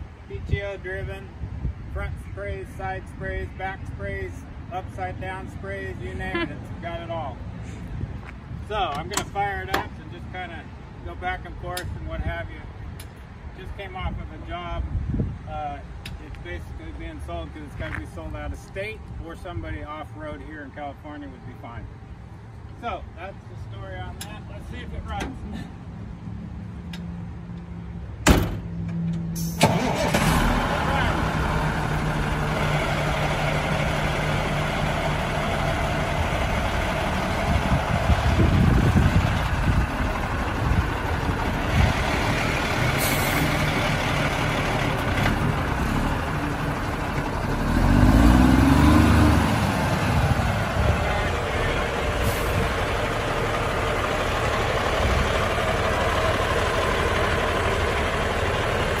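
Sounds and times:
diesel truck engine running: 0:29.4 - 0:59.0.

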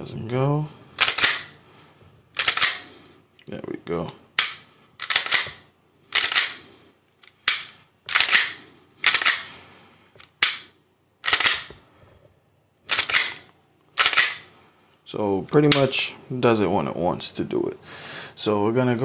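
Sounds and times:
pistol slide and trigger clacks: 0:01.0 - 0:01.6, 0:02.4 - 0:02.9, 0:04.4 - 0:09.6, 0:10.2 - 0:11.8, 0:12.9 - 0:14.5.

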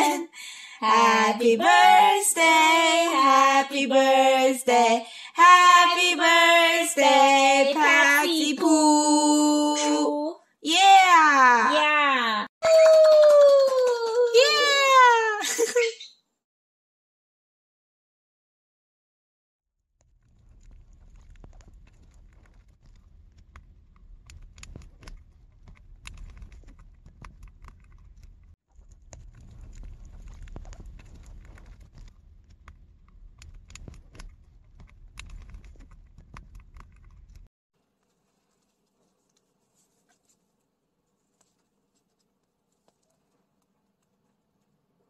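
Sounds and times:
low rumble: 0:20.0 - 0:37.5.

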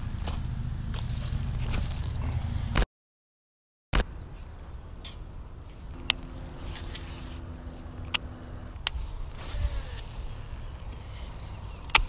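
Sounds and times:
wind rumble on microphone: 0:04.1 - 0:12.0.

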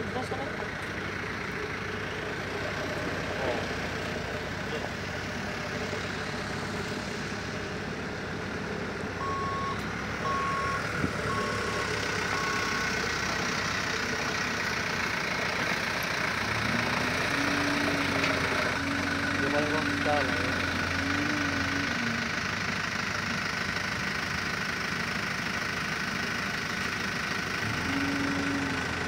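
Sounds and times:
diesel machinery running: 0:00.0 - 0:29.0
second engine: 0:00.0 - 0:29.0
reversing alarm beeps: 0:09.2 - 0:12.9.

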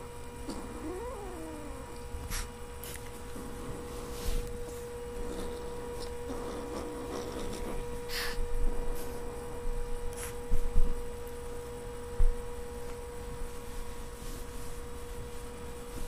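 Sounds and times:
electrical hum: 0:00.0 - 0:16.0
kitten huffing: 0:06.8 - 0:08.4
scuffling on a rug: 0:13.2 - 0:16.0.

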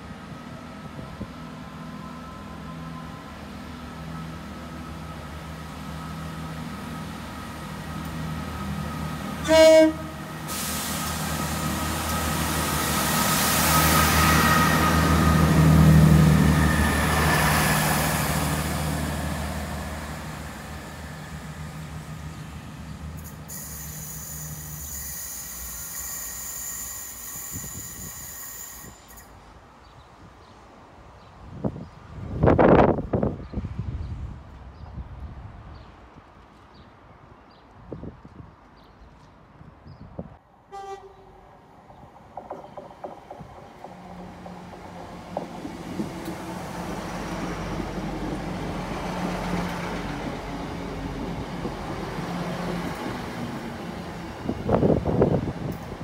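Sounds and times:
diesel train engines humming: 0:00.0 - 0:33.4, 0:40.5 - 0:56.0
train rolling noise: 0:00.0 - 0:33.7, 0:41.3 - 0:56.0
train horn toot: 0:09.4 - 0:10.3, 0:40.7 - 0:41.4.

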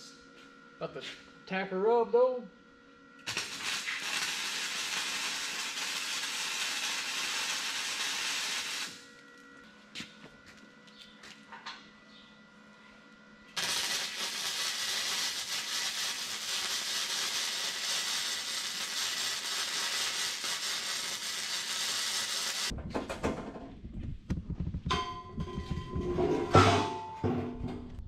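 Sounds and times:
arc welding crackling hiss: 0:03.2 - 0:09.1, 0:13.6 - 0:22.7
metal knocks and clanks: 0:24.6 - 0:28.0
loud metal clang: 0:24.9 - 0:27.8.

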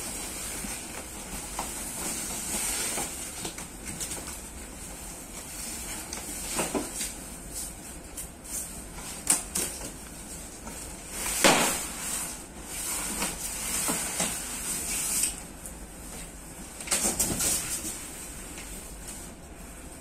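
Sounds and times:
cardboard scraping on styrofoam: 0:10.9 - 0:15.4.

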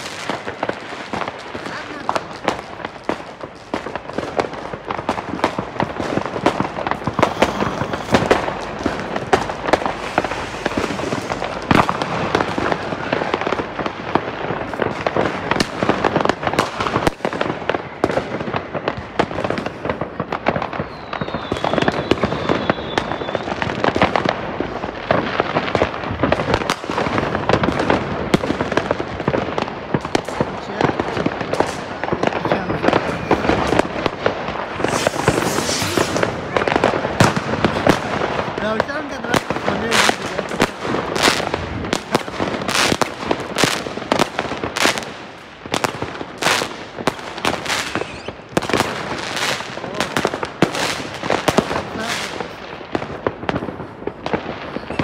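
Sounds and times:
firecrackers crackling: 0:00.0 - 0:55.0
high firework whistle: 0:20.7 - 0:23.6, 0:34.7 - 0:36.5, 0:47.8 - 0:48.4.

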